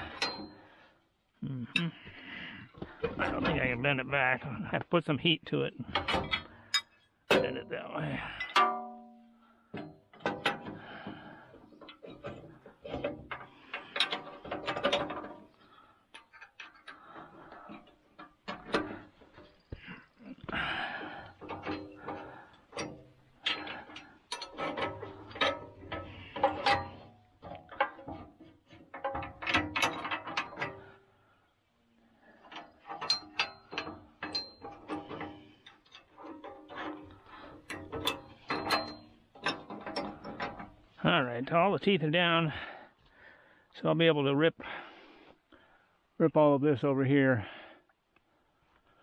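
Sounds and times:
metal parts clinking and rattling: 0.0s - 0.6s, 8.3s - 31.1s, 32.3s - 40.9s
metallic rings: 0.0s - 0.8s, 6.2s - 11.0s, 13.2s - 31.0s, 32.3s - 40.9s.

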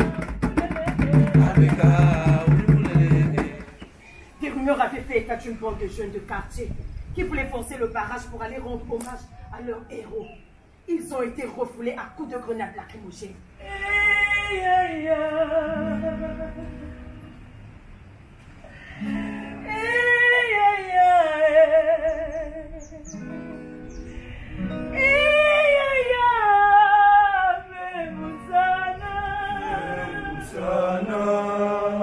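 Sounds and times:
low accompaniment: 0.0s - 3.8s
person singing with vibrato: 0.0s - 3.9s, 13.6s - 17.1s, 24.2s - 32.0s.

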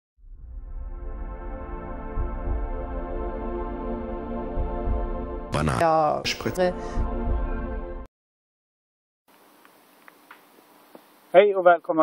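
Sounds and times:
ambient music with deep bass: 0.3s - 5.6s, 6.3s - 8.1s.

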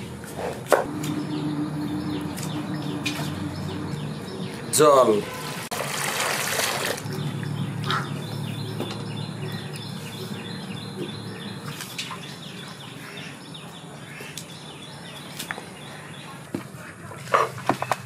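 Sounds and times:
bird chirping: 0.8s - 5.6s, 7.0s - 16.4s.

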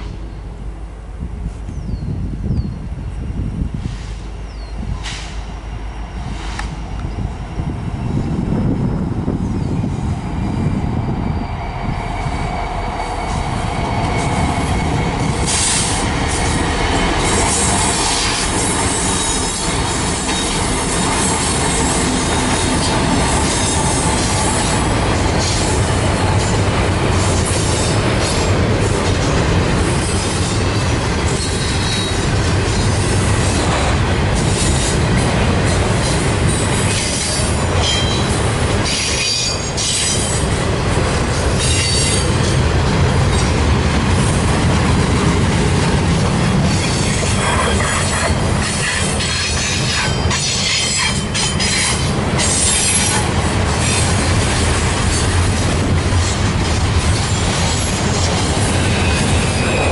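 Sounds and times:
wheel-on-rail noise: 9.7s - 59.9s
train clicking: 11.9s - 59.9s.

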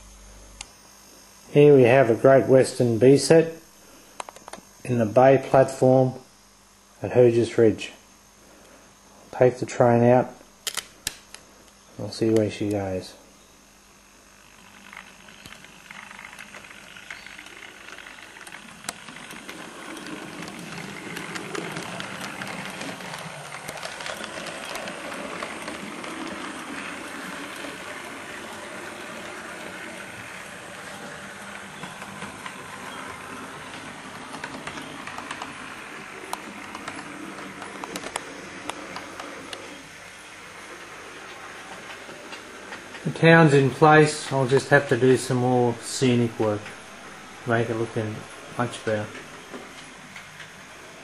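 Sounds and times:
model train motor rumble: 14.4s - 51.0s
wheels clicking over rail joints: 14.9s - 39.7s.

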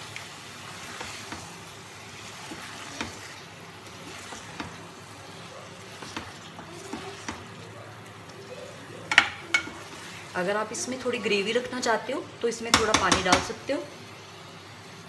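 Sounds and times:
eggs sizzling in a pan: 0.0s - 15.0s
spoon scraping and knocking pan: 2.4s - 3.3s, 3.9s - 4.9s, 5.8s - 7.6s, 9.1s - 10.1s, 12.7s - 13.6s.

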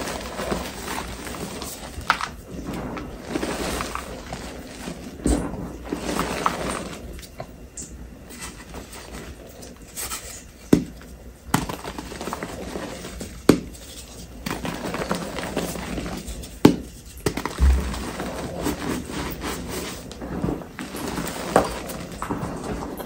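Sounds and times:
chalk crunching and rustling: 8.3s - 22.8s.

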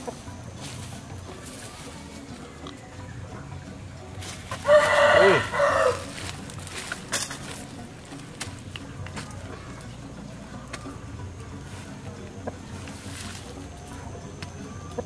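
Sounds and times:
rooster crowing: 4.6s - 6.1s.

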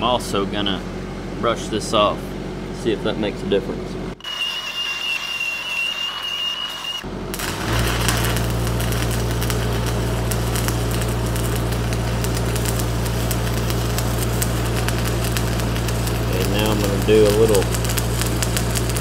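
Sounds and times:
angle grinder whining: 4.2s - 19.0s
welding arc crackling: 4.3s - 19.0s
low hum: 7.0s - 19.0s.

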